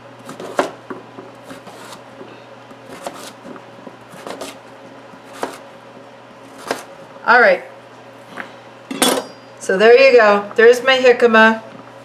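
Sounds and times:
knife chopping on cutting board: 0.2 - 2.0, 2.9 - 4.6, 5.2 - 5.6, 6.5 - 6.9.

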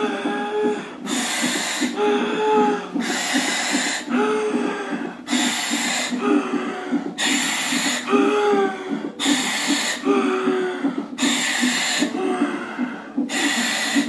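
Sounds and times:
woman breathing deeply: 0.2 - 14.0
demand valve hissing: 1.0 - 2.0, 3.0 - 4.1, 5.2 - 6.2, 7.1 - 8.1, 9.2 - 10.1, 11.2 - 12.2, 13.2 - 14.0.

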